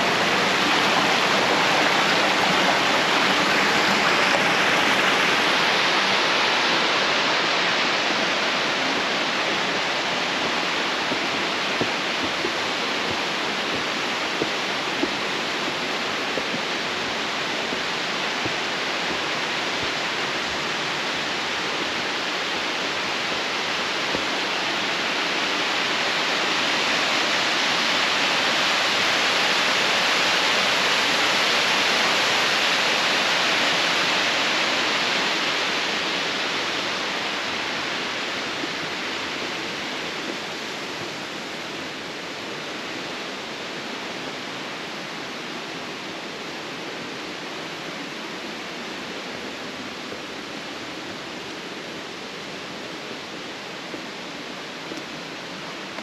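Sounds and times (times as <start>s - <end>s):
water rushing down rocky stream: 0.0s - 56.0s.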